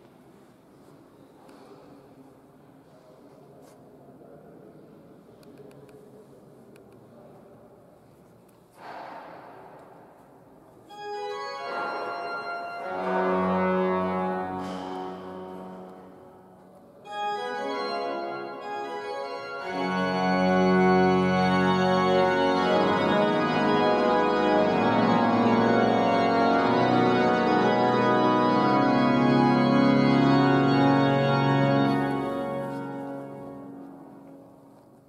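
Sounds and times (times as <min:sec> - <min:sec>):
pipe organ chords: 0:10.9 - 0:34.6.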